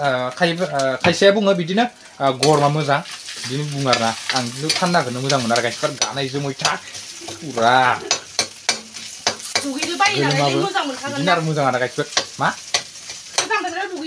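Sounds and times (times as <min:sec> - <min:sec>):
food frying in a pan: 0:00.0 - 0:14.0
man talking animatedly: 0:10.2 - 0:12.6.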